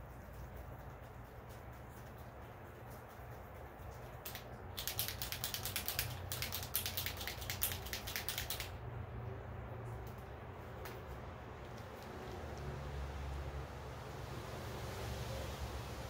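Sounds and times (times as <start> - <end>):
gloved hand crackling clicks: 4.2 - 8.8.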